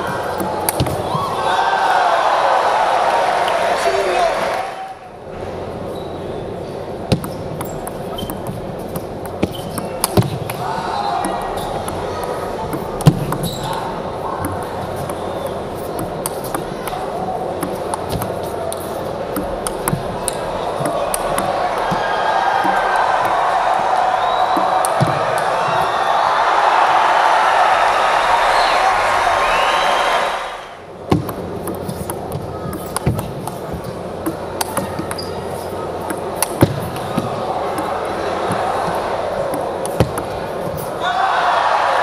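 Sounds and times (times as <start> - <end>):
table tennis ball clicks: 0.0 - 1.1, 7.1 - 10.6, 11.2 - 23.5, 24.5 - 26.0, 31.1 - 41.0
background murmur: 0.0 - 42.0
low arena hum: 0.0 - 42.0.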